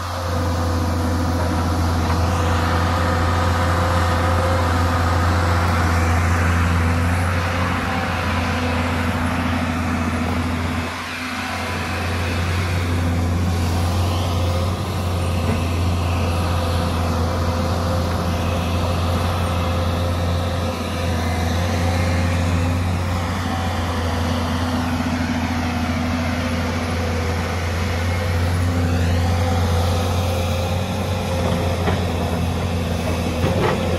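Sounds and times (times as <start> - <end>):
excavator diesel engine running: 0.0 - 33.9.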